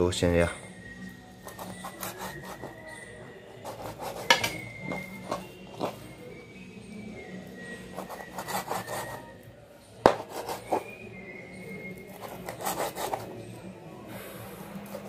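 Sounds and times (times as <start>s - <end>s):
knife slicing meat: 1.5s - 2.8s, 3.6s - 6.0s, 10.1s - 11.0s, 12.0s - 13.3s.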